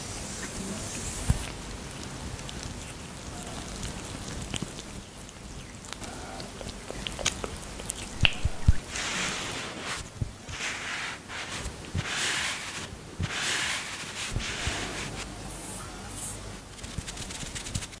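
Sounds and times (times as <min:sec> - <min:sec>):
sticky clicks of fingers on cream: 0:05.9 - 0:08.8
sponge swishing on skin: 0:08.1 - 0:18.0.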